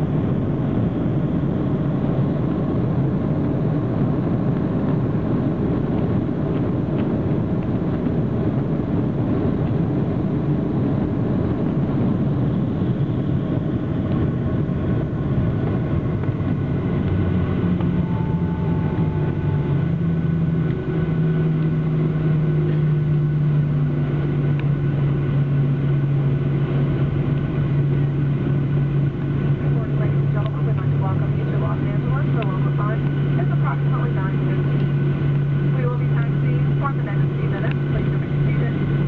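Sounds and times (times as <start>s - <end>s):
aircraft cabin rumble: 0.0s - 39.0s.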